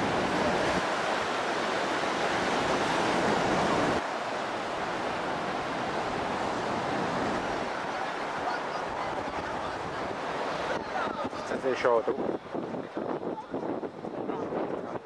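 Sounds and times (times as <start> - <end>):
sea surf breaking: 0.0 - 15.0
wind on microphone: 8.5 - 15.0.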